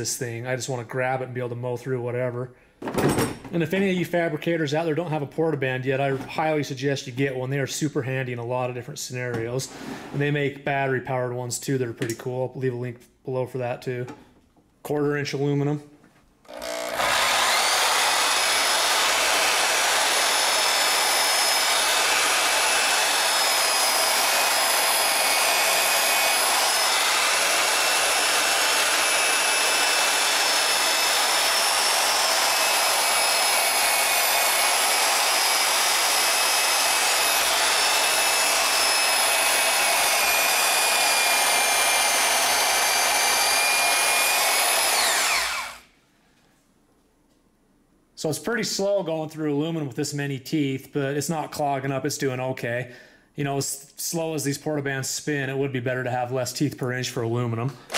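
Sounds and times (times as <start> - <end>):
band saw cutting metal: 16.5 - 45.9.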